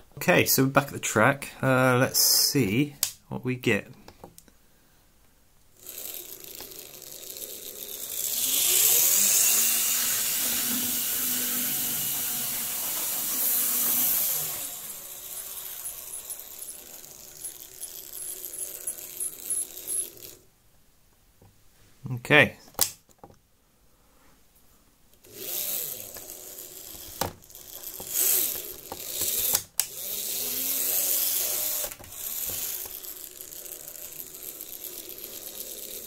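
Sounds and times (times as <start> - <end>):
model train motor whirring: 5.8 - 20.4, 25.2 - 36.0.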